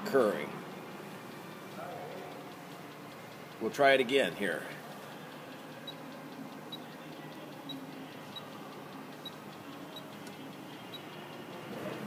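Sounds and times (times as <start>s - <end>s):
low steady background: 0.0s - 12.0s.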